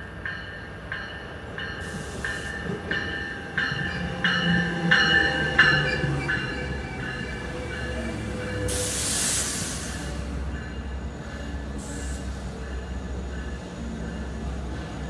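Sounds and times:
passenger train rumbling past: 0.0s - 15.0s
loud hiss of air: 8.7s - 10.3s.

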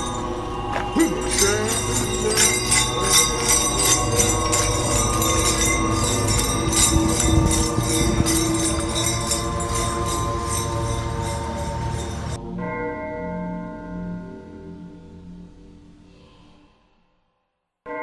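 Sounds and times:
bells jingling: 0.0s - 12.9s
music: 0.0s - 18.0s.

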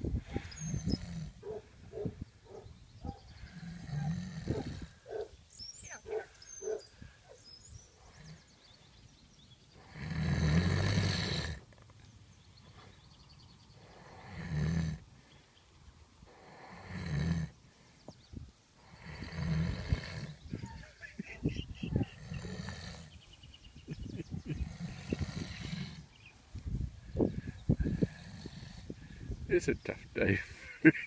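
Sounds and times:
horse snoring: 0.3s - 2.0s, 3.4s - 5.2s, 9.8s - 11.8s, 13.8s - 15.1s, 16.3s - 17.6s, 18.8s - 20.4s, 22.1s - 23.2s, 24.5s - 26.2s, 27.8s - 29.0s.

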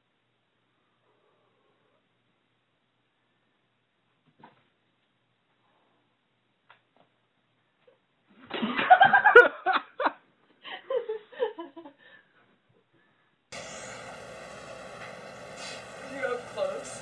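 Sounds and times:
steady drone: 13.6s - 17.0s.

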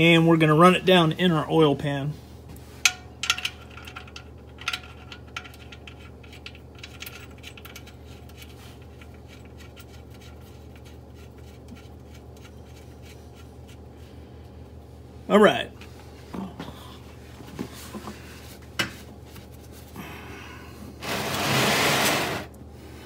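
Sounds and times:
steady low hum: 0.0s - 23.0s
metallic clicks and scrapes: 2.8s - 13.8s.

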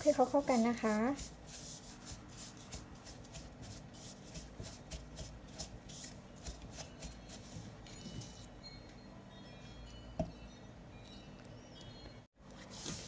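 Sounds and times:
spatula scraping in plastic bowl: 0.0s - 4.8s.

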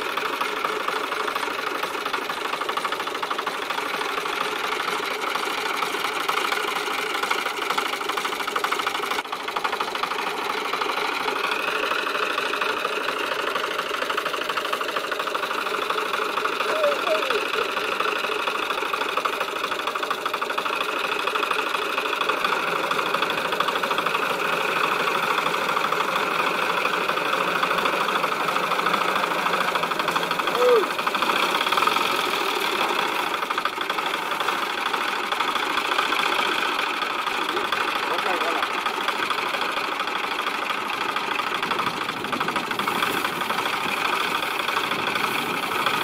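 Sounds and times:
tractor diesel engine under load: 0.0s - 46.0s.

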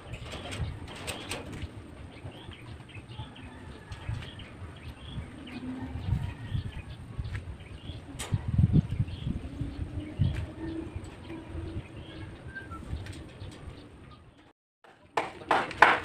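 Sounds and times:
small birds chirping: 0.0s - 14.5s.

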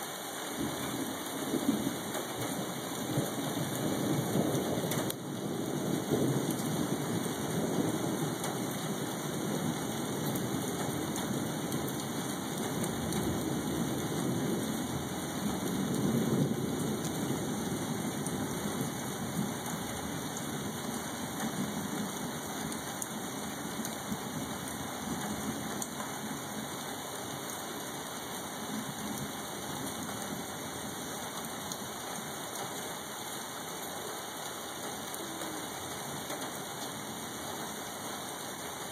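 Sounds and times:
rain hissing: 0.0s - 38.9s
distant thunder rumbling: 0.6s - 26.8s.

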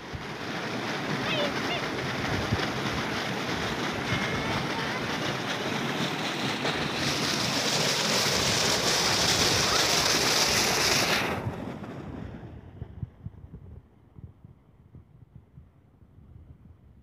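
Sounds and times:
water rushing and splashing: 0.0s - 11.6s.

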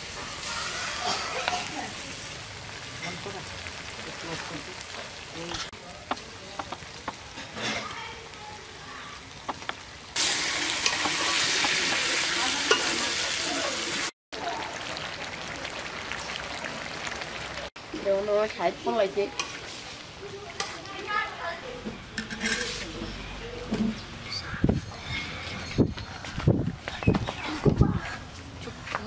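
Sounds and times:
chicken sizzling in oil: 0.0s - 21.4s
metal spatula scraping pan: 22.2s - 23.3s, 23.9s - 25.9s.

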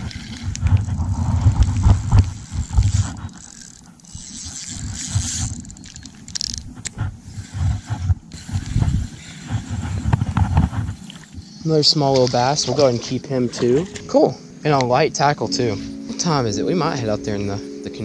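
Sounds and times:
fishing reel scraping and clicking: 0.0s - 11.3s
wind buffeting microphone: 0.0s - 18.0s.

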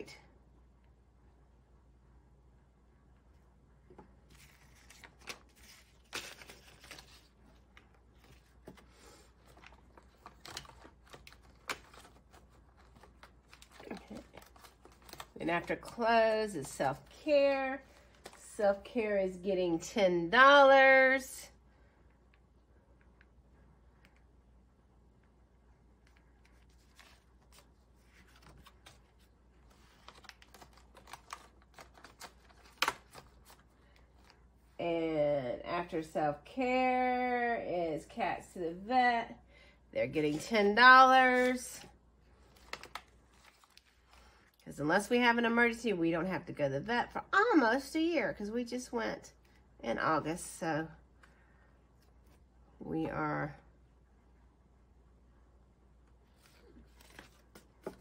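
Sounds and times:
paper and plastic rustling: 4.2s - 17.2s, 26.1s - 34.4s, 41.2s - 44.6s, 56.3s - 58.0s.

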